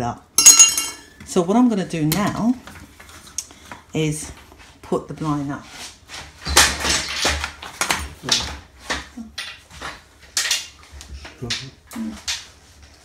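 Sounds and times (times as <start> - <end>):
venetian blind slats clattering: 9.4 - 10.9.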